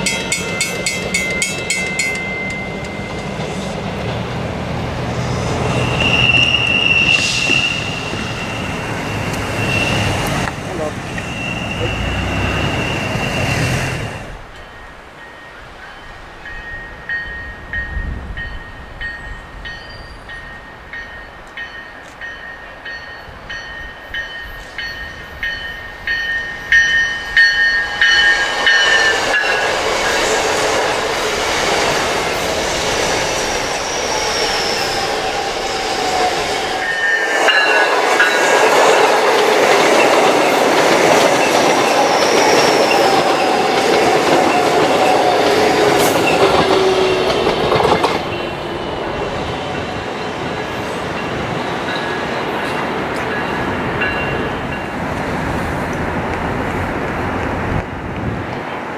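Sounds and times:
train rumbling and clattering past: 0.0s - 58.9s
train wheels squealing: 5.4s - 30.6s, 32.5s - 38.6s, 40.0s - 52.7s.

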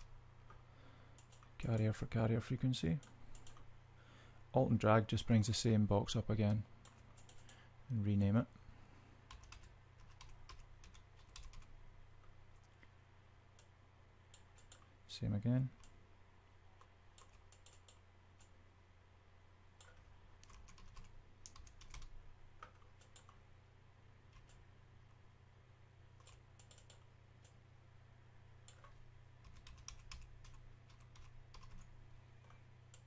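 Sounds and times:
low steady hum: 0.0s - 33.0s
keyboard typing: 1.2s - 1.5s, 3.0s - 3.7s, 6.8s - 7.6s, 9.3s - 11.7s, 14.4s - 14.9s, 16.8s - 18.5s, 19.8s - 23.4s, 24.3s - 24.6s, 26.2s - 27.6s, 28.6s - 33.0s.

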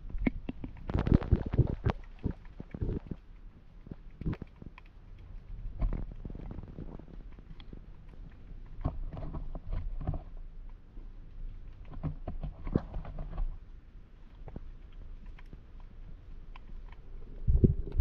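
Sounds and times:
underwater knocks and clicks: 0.0s - 3.2s, 5.6s - 7.8s, 8.7s - 10.4s, 11.8s - 13.6s, 16.9s - 18.0s
muffled underwater rumble: 17.0s - 18.0s.

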